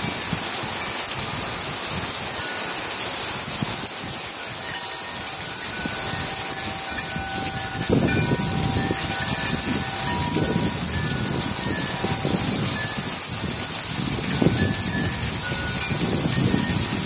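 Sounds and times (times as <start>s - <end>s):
heavy rain hissing: 0.0s - 17.0s
metal wind chime ringing: 4.4s - 17.0s.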